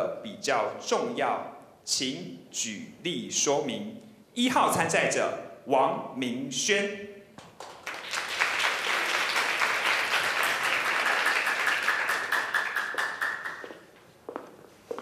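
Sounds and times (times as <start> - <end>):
audience applauding: 7.6 - 13.8
high-heeled step on wooden floor: 13.6 - 15.0.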